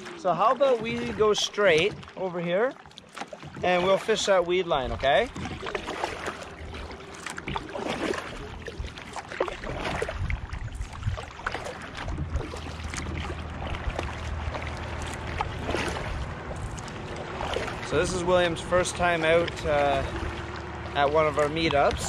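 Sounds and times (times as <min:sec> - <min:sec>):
paddle splashing in water: 0:00.0 - 0:22.0.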